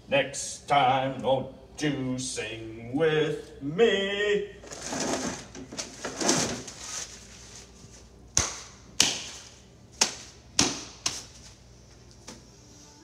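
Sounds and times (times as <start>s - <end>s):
hands slapping: 8.3s - 11.3s.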